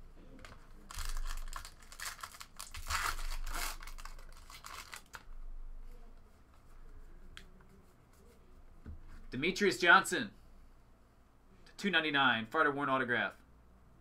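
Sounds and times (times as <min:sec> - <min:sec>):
cards rustling: 0:00.4 - 0:05.3
foil wrapper crinkling and tearing: 0:00.8 - 0:05.3.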